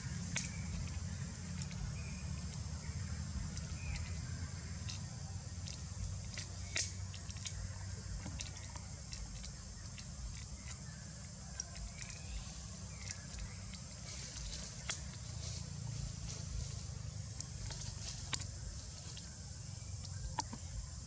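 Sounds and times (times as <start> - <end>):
small clicks and crackles: 3.3 - 15.6
low rumble: 11.5 - 21.0.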